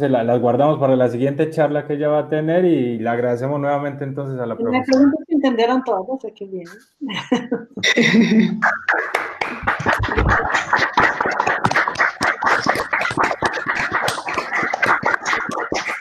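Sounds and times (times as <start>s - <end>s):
people clapping: 8.6s - 16.0s.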